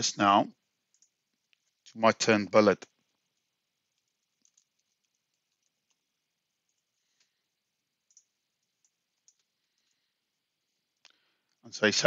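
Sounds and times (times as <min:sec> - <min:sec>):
keyboard and mouse clicks: 0:00.9 - 0:01.2, 0:04.0 - 0:06.0, 0:08.0 - 0:09.5.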